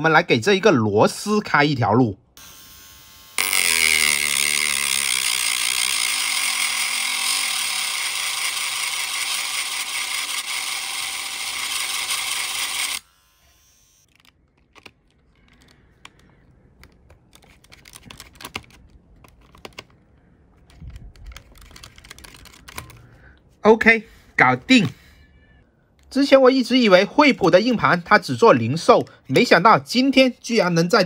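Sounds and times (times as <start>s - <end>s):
rotary tool grinding metal: 2.4s - 14.1s.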